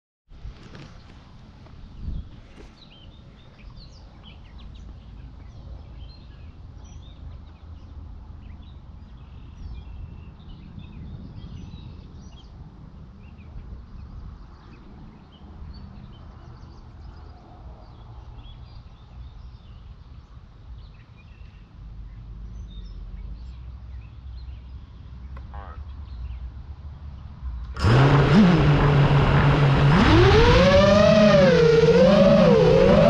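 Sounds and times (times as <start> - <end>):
wind rumble on microphone: 0.3 - 24.1.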